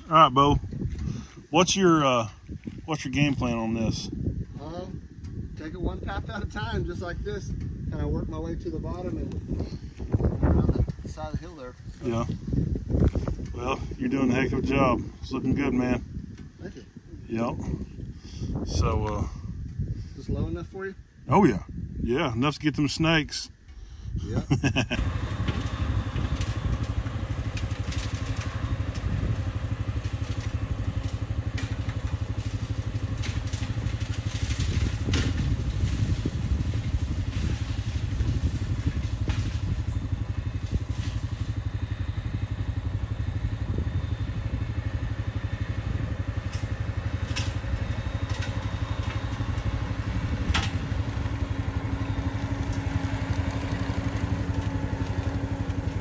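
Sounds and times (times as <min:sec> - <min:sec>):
skid steer engine running: 0:00.0 - 0:04.0, 0:24.7 - 0:56.0.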